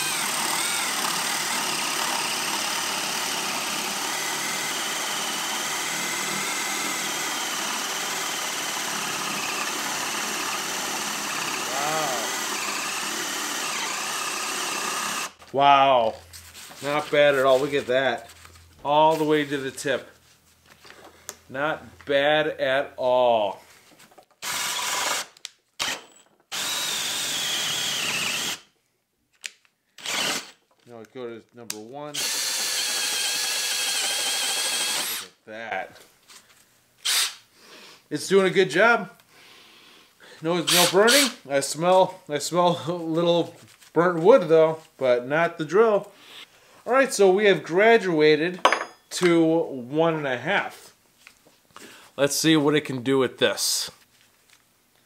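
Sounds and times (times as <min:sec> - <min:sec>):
drill boring into wood: 0:00.0 - 0:15.4, 0:24.4 - 0:28.7, 0:30.0 - 0:30.6, 0:32.1 - 0:35.4, 0:37.0 - 0:37.4, 0:40.6 - 0:41.4.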